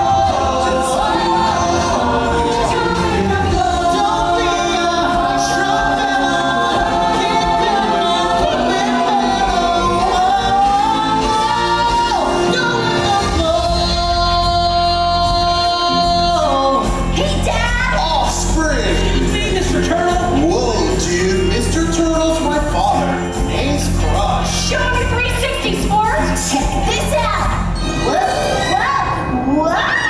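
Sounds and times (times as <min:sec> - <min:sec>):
group singing in harmony: 0:00.0 - 0:18.2
backing music: 0:00.0 - 0:29.9.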